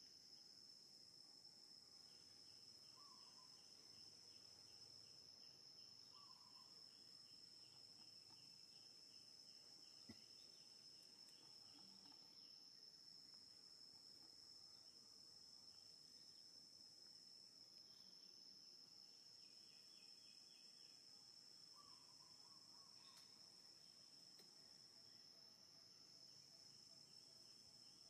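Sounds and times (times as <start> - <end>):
insect chorus buzzing: 0.0 - 28.0
rapid pulsing insect chirp: 0.0 - 28.0
faint click: 23.1 - 23.3, 24.4 - 24.6.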